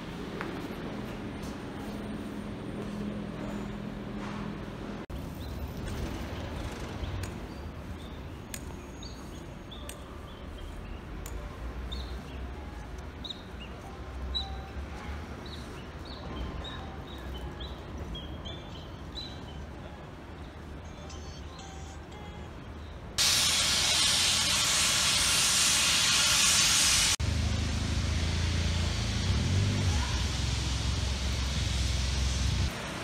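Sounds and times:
small birds chirping: 0:06.5 - 0:14.8
train humming: 0:23.2 - 0:33.0
low outdoor rumble: 0:24.2 - 0:33.0.

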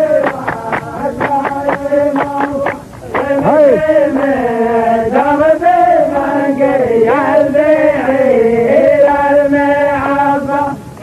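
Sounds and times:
man chanting: 0:00.0 - 0:04.2.

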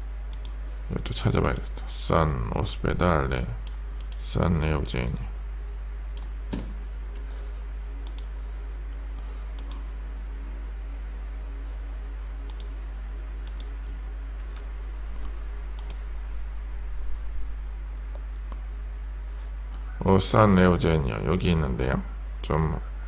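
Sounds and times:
low electrical hum: 0:00.0 - 0:23.0
computer mouse clicking: 0:00.3 - 0:00.6, 0:03.6 - 0:04.2, 0:08.0 - 0:08.3, 0:09.6 - 0:09.9, 0:12.5 - 0:12.8, 0:13.4 - 0:14.6, 0:15.2 - 0:16.0.

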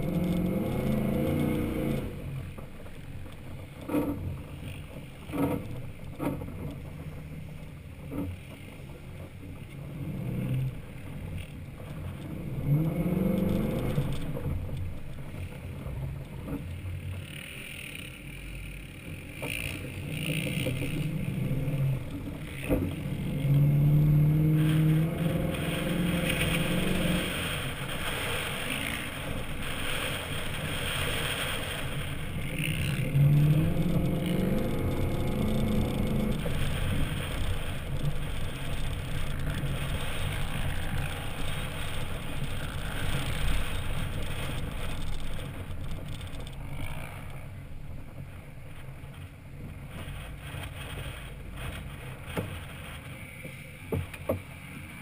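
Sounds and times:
truck engine revving: 0:20.0 - 0:44.8.

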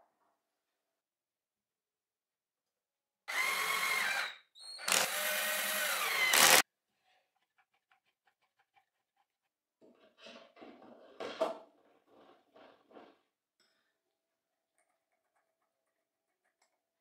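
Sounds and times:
drill driving a screw: 0:03.3 - 0:06.6.

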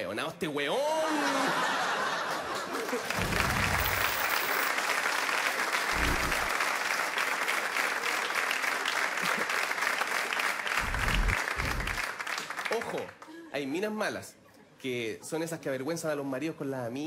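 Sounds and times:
audience clapping: 0:02.3 - 0:13.3.

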